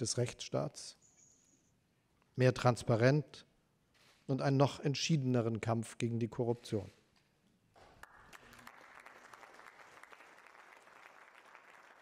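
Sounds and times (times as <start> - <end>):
audience applauding: 8.0 - 12.0.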